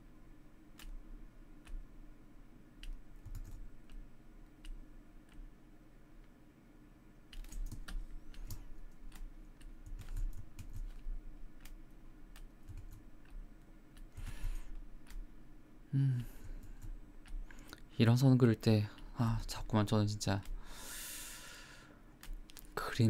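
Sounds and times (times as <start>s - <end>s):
keyboard and mouse clicks: 0.7s - 1.9s, 2.8s - 5.5s, 7.3s - 15.3s, 16.2s - 17.8s, 22.2s - 22.8s.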